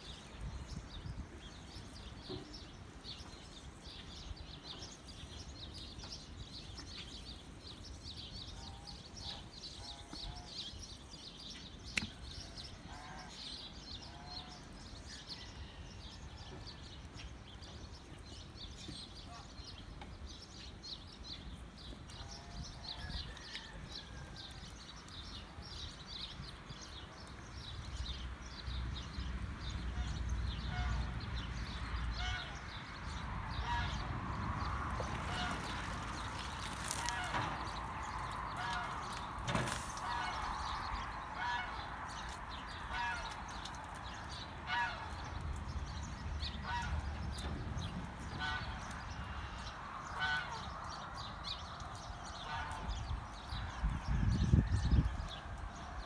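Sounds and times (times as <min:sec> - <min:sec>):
small birds chirping: 0:16.6 - 0:56.0.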